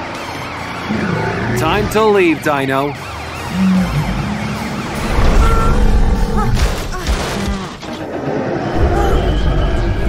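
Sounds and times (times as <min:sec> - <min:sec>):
cartoon police siren wailing: 0:00.0 - 0:06.6.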